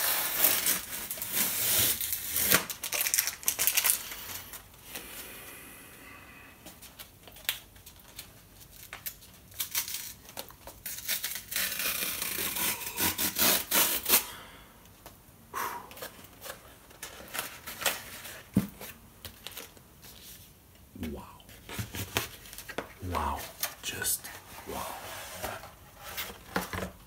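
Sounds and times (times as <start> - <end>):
packing tape ripping: 0.0 - 4.5, 7.2 - 14.3
cardboard crinkling and rustling: 0.0 - 4.6, 16.0 - 20.5, 21.5 - 27.0.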